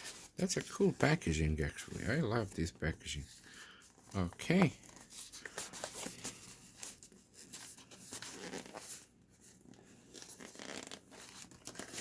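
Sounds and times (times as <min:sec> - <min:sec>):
cardboard packaging being opened: 0:10.0 - 0:12.0.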